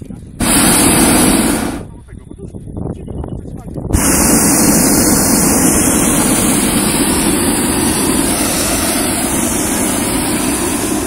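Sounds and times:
propane burner blast: 0:00.4 - 0:02.0, 0:03.9 - 0:11.0.

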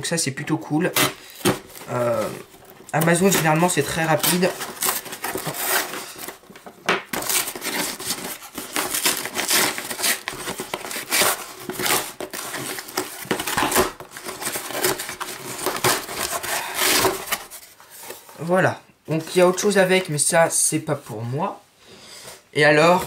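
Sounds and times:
cardboard box being torn open: 0:00.9 - 0:06.4, 0:07.1 - 0:17.6.

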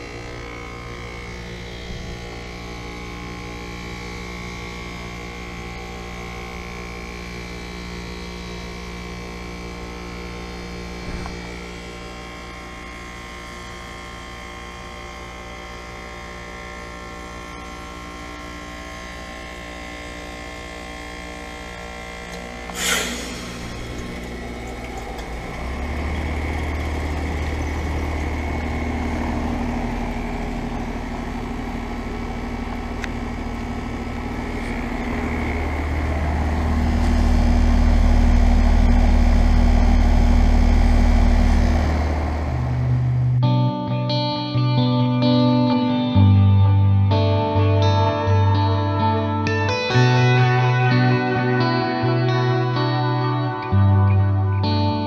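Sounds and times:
compressor humming: 0:00.0 - 0:43.6
reversing valve whoosh: 0:22.6 - 0:32.6, 0:33.7 - 0:43.4
rushing hiss: 0:22.7 - 0:25.2.

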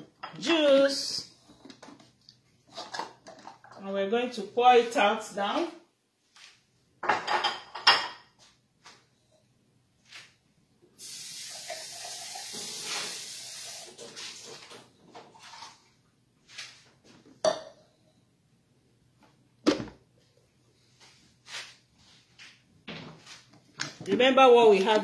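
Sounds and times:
dishes and utensils clinking: 0:07.0 - 0:08.4
steady hiss: 0:11.0 - 0:14.5.

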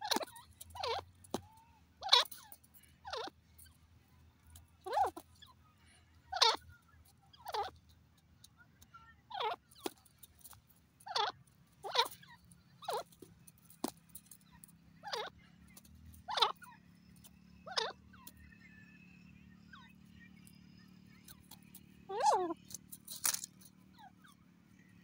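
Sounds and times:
bird giving sharp calls: 0:00.0 - 0:03.4, 0:04.8 - 0:05.5, 0:06.3 - 0:06.6, 0:07.4 - 0:07.8, 0:11.0 - 0:13.2, 0:15.0 - 0:15.3, 0:16.2 - 0:16.8, 0:17.6 - 0:18.0, 0:21.3 - 0:22.8.

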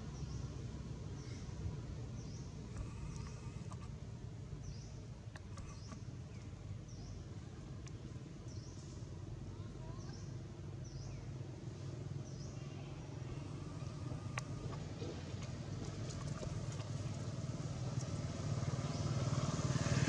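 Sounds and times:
steady low rumble: 0:00.0 - 0:09.5, 0:10.4 - 0:18.6
faint clicks: 0:02.7 - 0:03.9, 0:05.3 - 0:06.5, 0:13.8 - 0:17.0.

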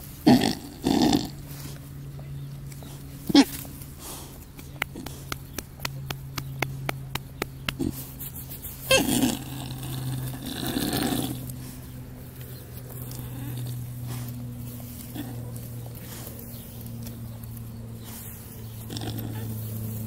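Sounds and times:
pig grunt: 0:00.2 - 0:01.5, 0:03.3 - 0:05.3, 0:07.8 - 0:08.1, 0:08.9 - 0:11.8, 0:13.0 - 0:16.4, 0:18.8 - 0:19.7
pig snoring: 0:00.2 - 0:01.5, 0:08.9 - 0:11.8, 0:12.9 - 0:16.4, 0:18.0 - 0:19.8.

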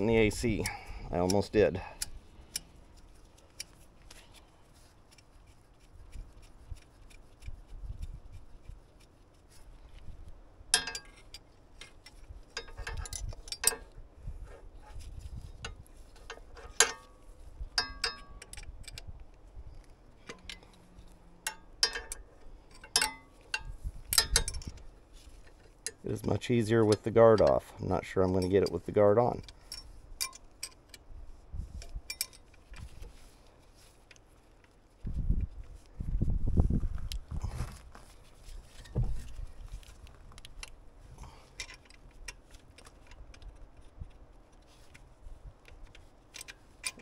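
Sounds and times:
metal hand tools clinking: 0:10.8 - 0:11.5, 0:21.5 - 0:24.8.

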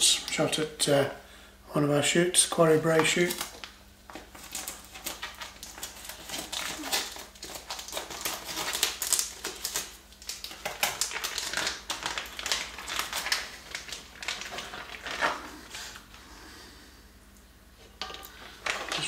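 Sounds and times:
plastic bags crinkling: 0:02.8 - 0:16.1, 0:18.0 - 0:19.0.

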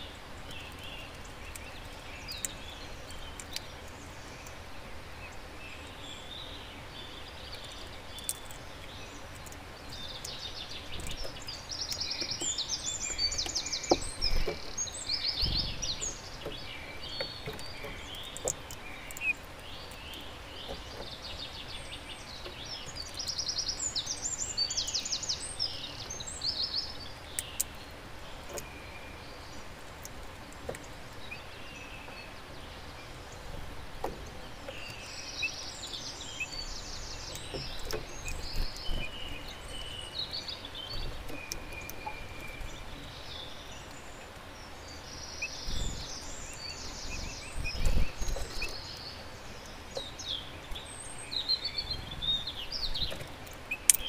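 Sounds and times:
outdoor background hiss: 0:00.0 - 0:54.0
songbirds singing and calling: 0:00.0 - 0:54.0
low thump: 0:15.4 - 0:16.1.

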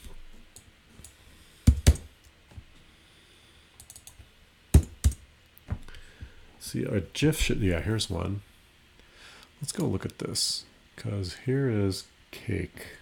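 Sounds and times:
keyboard typing: 0:03.8 - 0:04.2.

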